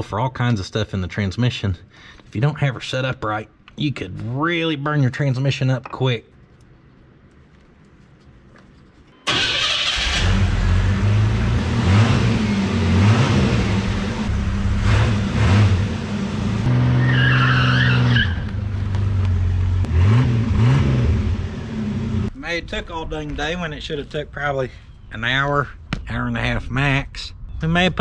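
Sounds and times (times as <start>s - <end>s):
car engine starting and revving: 9.3s - 22.3s
tires screeching: 9.3s - 22.3s.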